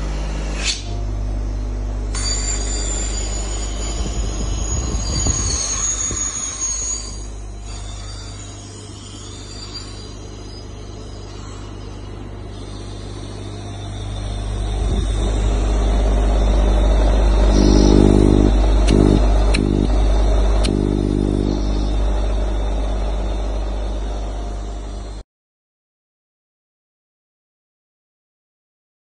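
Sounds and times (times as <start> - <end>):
vacuum pump humming: 12.1 - 25.2
pitched tone: 14.0 - 24.3
sharp clicks: 17.7 - 19.9.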